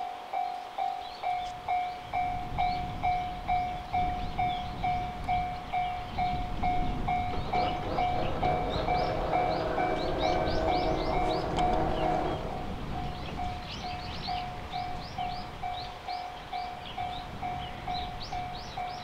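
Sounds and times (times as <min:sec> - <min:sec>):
train rumble: 0:00.0 - 0:19.0
steady tones: 0:05.6 - 0:14.9.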